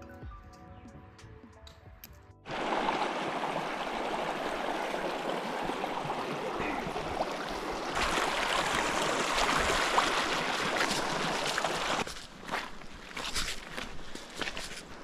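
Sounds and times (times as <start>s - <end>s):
river rushing over rocks: 2.5s - 12.0s.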